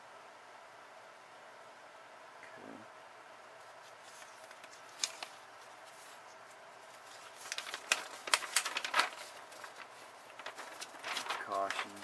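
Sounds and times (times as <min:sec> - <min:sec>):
paper crinkling: 0:03.6 - 0:12.0.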